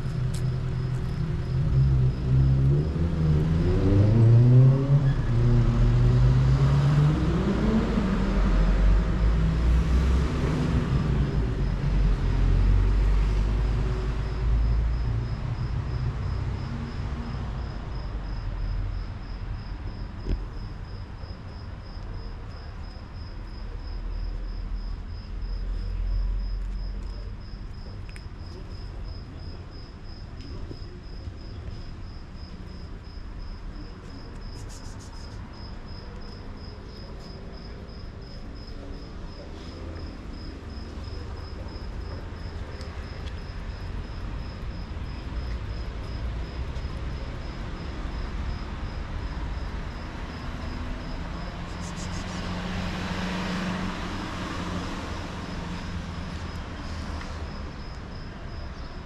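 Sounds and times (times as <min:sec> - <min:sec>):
vehicle driving past: 0:01.4 - 0:14.7, 0:50.1 - 0:57.8.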